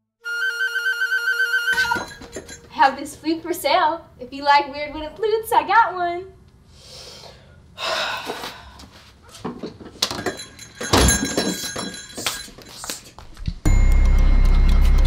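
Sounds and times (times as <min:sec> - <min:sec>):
door bells jingling: 0:01.7 - 0:02.9, 0:10.0 - 0:12.9
loud steady low rumble: 0:13.7 - 0:15.0.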